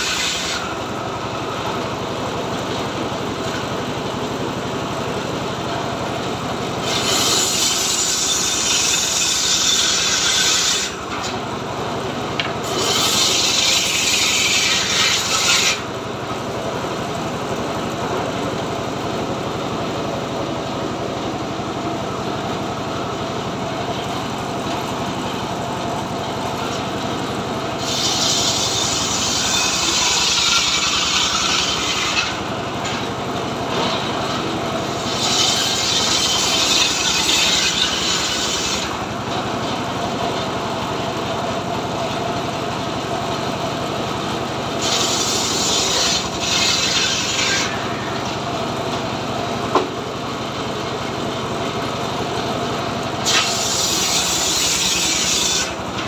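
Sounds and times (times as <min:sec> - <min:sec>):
saw blade cutting wood: 0:00.0 - 0:03.8, 0:06.7 - 0:11.6, 0:12.3 - 0:16.4, 0:27.7 - 0:40.5, 0:44.7 - 0:49.1, 0:53.2 - 0:56.0
saw engine running: 0:00.0 - 0:56.0.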